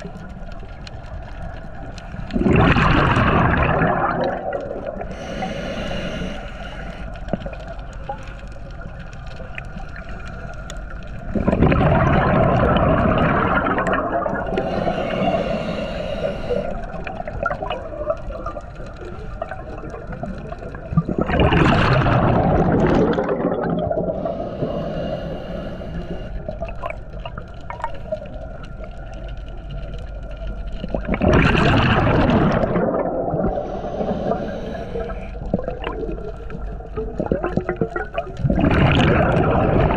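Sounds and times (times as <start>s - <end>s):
regulator inhalation hiss: 5.1s - 7.1s, 14.5s - 17.1s, 24.2s - 26.6s, 33.6s - 35.4s
regulator exhalation bubbles: 21.0s - 24.3s, 37.2s - 39.9s.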